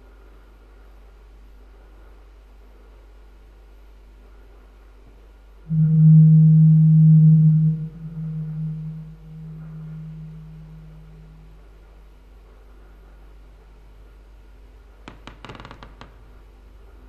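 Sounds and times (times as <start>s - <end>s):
low humming tone: 5.7s - 11.9s.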